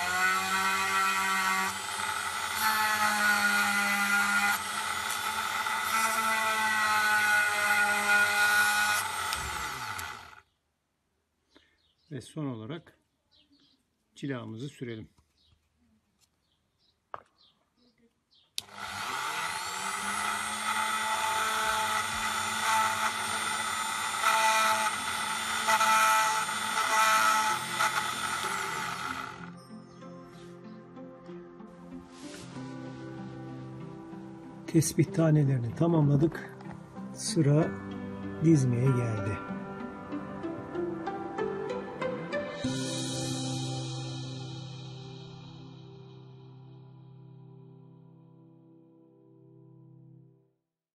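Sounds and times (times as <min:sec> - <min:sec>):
rotary tool motor whine: 0:00.0 - 0:10.4, 0:18.6 - 0:29.5.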